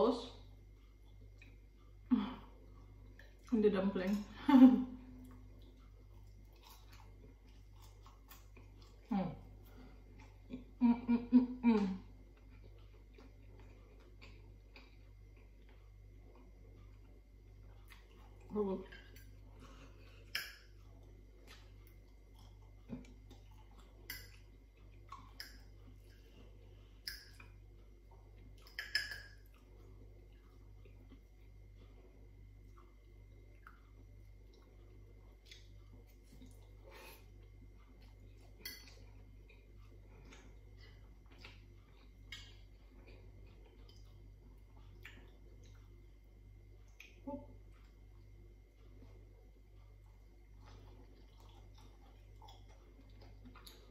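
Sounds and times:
faint steady hum: 0.0 - 53.9
wet mouth eating sounds: 5.1 - 53.9
fork clicking on a plate: 28.6 - 29.4.

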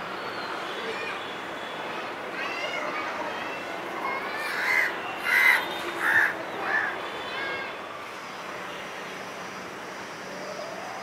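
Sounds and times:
steady background noise: 0.0 - 11.0
crow cawing: 4.4 - 6.9.

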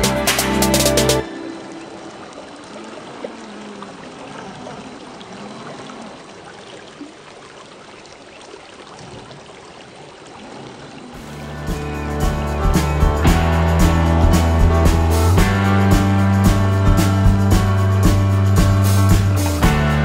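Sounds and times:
creek water trickling over rocks: 1.2 - 11.5.

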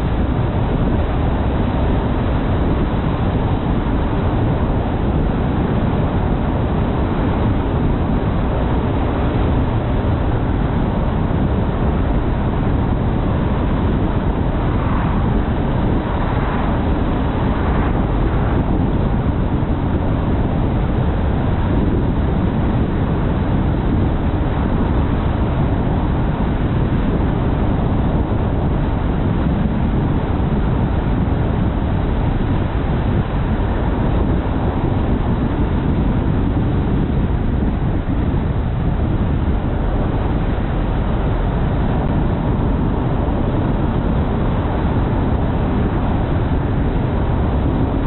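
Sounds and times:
car driving road rumble: 0.0 - 48.0.

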